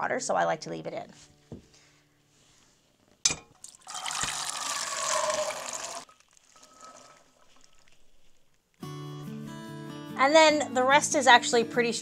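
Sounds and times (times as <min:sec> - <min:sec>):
beans and water pouring into pot: 0:03.6 - 0:08.4.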